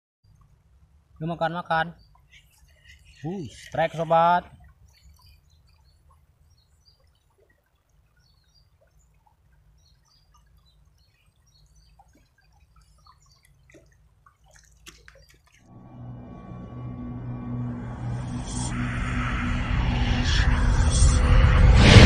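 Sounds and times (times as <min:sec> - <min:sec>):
shallow river babbling over stones: 0:00.4 - 0:15.7
music: 0:15.7 - 0:22.0.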